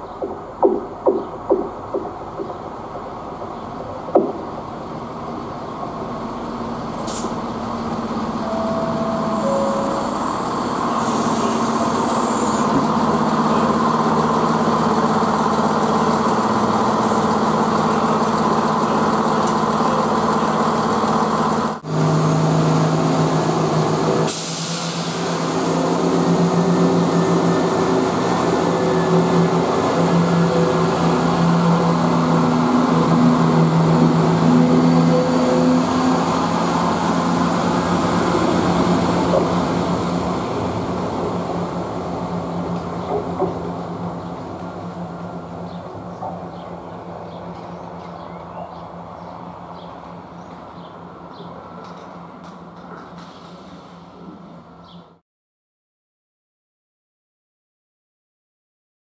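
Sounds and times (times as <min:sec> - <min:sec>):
diesel train engines droning: 0:00.0 - 0:55.2
high squeal: 0:08.5 - 0:12.7, 0:34.4 - 0:36.6.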